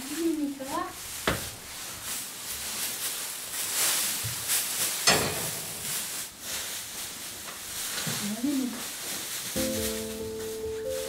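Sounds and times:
dry straw rustling: 0.0 - 11.0
pitchfork knock: 5.1 - 6.0.

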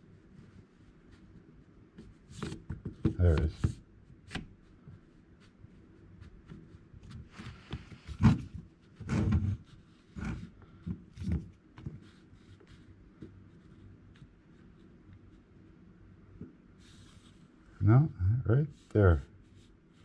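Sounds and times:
faint rubbing: 16.7 - 17.8.

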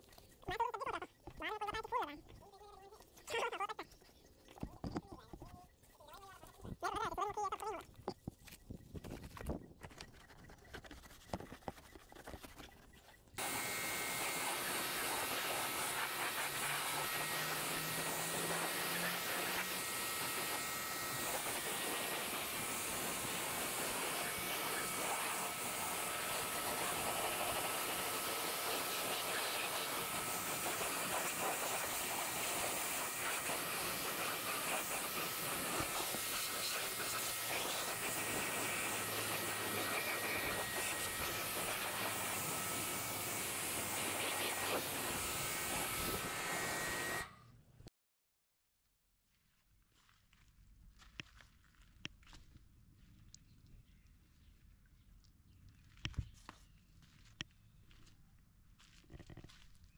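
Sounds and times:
pressure washer spraying: 13.4 - 47.3.

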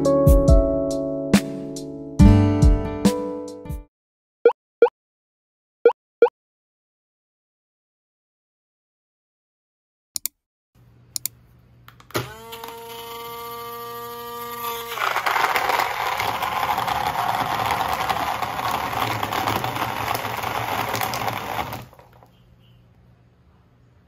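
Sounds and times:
blender motor whining: 12.2 - 22.2.

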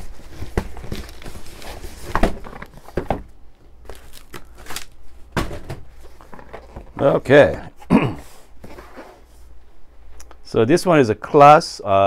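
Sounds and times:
cardboard rustling and knocking: 0.0 - 4.3, 5.3 - 7.6.

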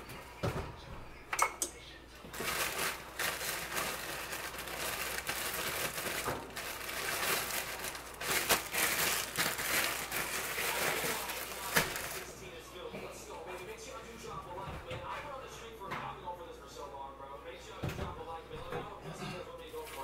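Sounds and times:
plastic bag crinkling: 2.3 - 12.4.

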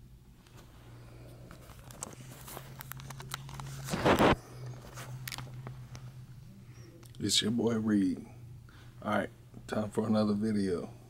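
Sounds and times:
steady low hum: 0.0 - 11.0
phone handling clicks and rustles: 1.3 - 6.1.

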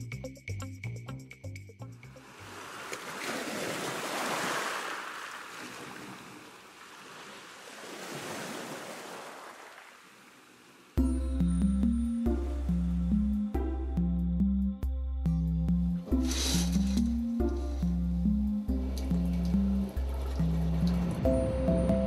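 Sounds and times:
music: 0.0 - 2.3, 11.0 - 22.0
waves washing in: 2.2 - 11.0, 16.2 - 17.0.

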